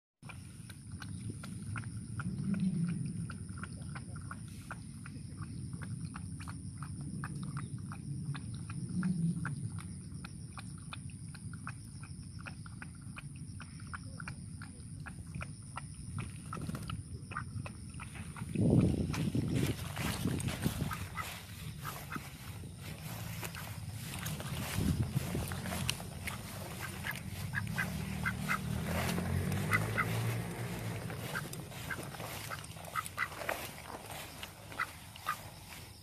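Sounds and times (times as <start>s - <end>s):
dog lapping water: 0.2s - 36.0s
low rumble: 18.5s - 34.7s.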